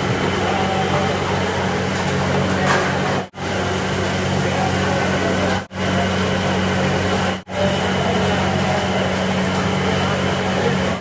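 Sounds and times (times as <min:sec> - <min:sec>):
low kitchen hum: 0:00.0 - 0:11.0.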